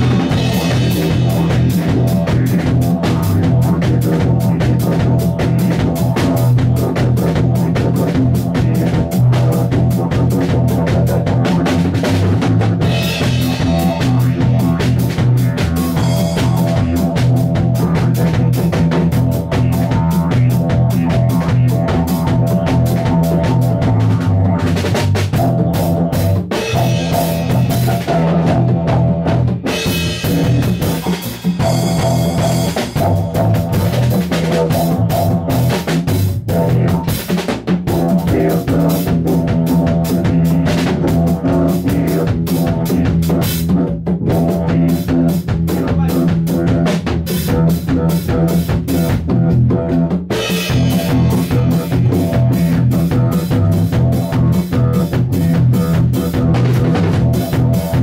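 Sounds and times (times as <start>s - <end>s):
drum kit beating: 0.0s - 58.0s
sustained low instrumental tones: 0.0s - 58.0s.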